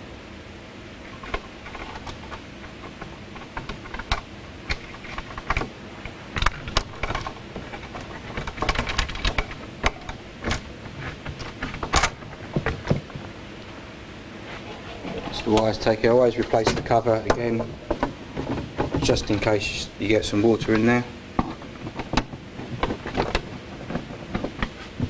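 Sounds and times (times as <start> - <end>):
steady low hum: 0.0 - 25.0
wires and connectors clicking: 1.1 - 13.3.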